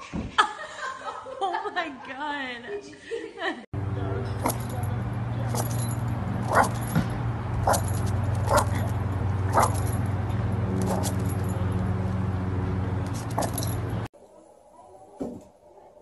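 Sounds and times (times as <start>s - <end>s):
dog barking: 6.4s - 6.9s, 7.6s - 10.0s, 10.8s - 11.2s, 13.3s - 13.6s.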